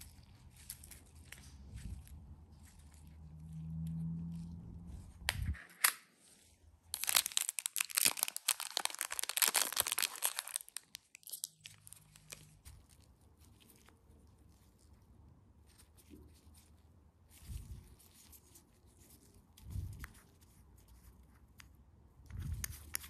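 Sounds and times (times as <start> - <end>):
plastic wrap crackling: 6.9 - 13.9.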